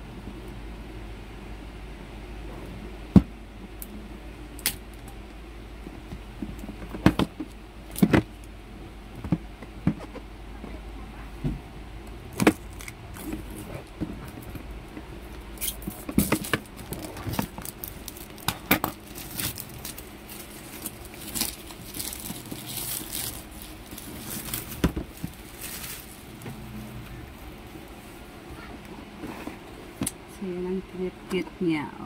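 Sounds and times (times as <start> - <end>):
cardboard and paper crinkling: 15.7 - 28.3.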